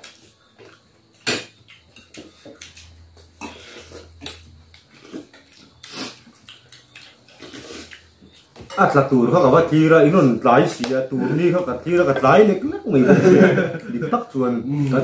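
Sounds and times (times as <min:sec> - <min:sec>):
chewing and lip-smacking: 0:00.0 - 0:08.6.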